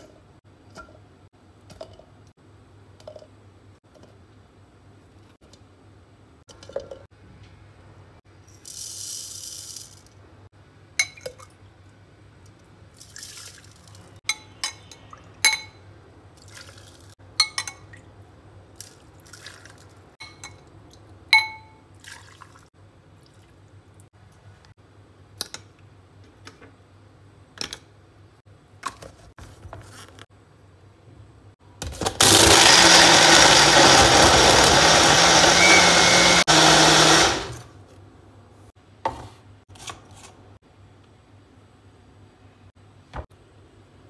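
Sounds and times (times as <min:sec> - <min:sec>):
water pouring: 0:13.0 - 0:14.2, 0:22.0 - 0:23.6.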